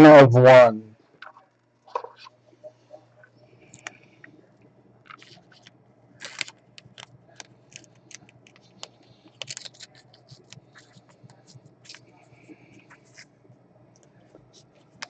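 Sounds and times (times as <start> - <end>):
plastic card sleeve crinkling: 5.0 - 13.3.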